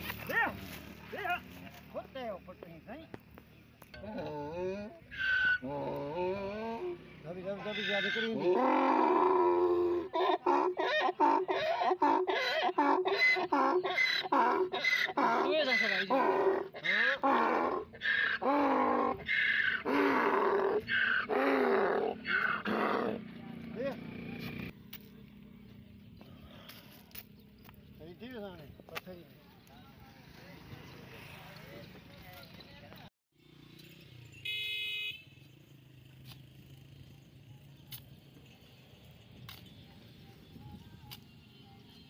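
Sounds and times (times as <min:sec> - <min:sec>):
donkey braying: 0:04.0 - 0:23.4.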